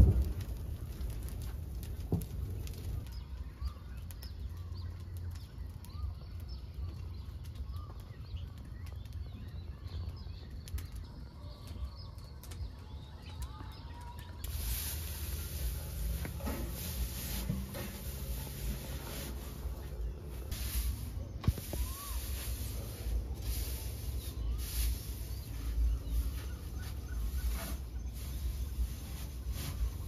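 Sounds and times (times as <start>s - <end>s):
small birds chirping: 0.0s - 30.0s
straw fire crackling: 0.0s - 30.0s
loud hiss: 14.4s - 30.0s.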